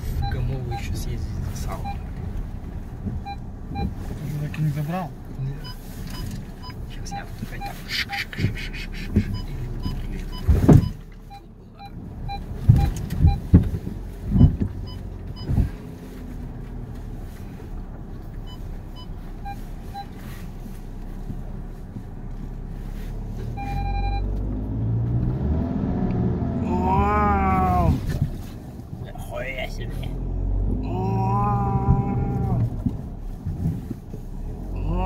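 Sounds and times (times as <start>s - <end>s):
car engine revving: 0.0s - 35.0s
short electronic beeps: 0.2s - 1.0s, 1.7s - 2.1s, 3.2s - 4.0s, 5.6s - 8.3s, 9.3s - 13.5s, 18.5s - 20.2s, 23.5s - 24.3s.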